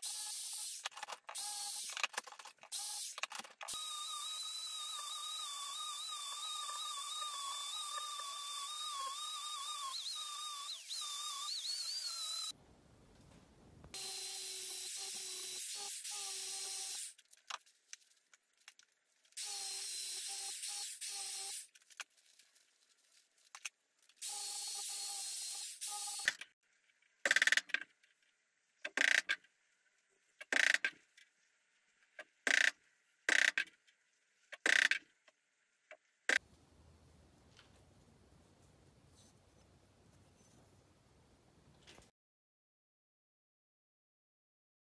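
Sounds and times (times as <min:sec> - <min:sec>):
power drill running: 0:03.7 - 0:12.5, 0:14.0 - 0:17.1
angle grinder on metal: 0:03.8 - 0:12.5.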